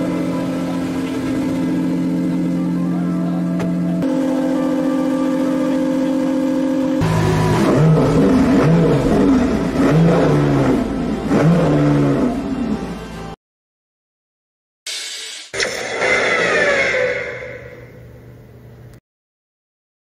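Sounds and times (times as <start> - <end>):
car engine idling and revving: 0.0 - 13.4.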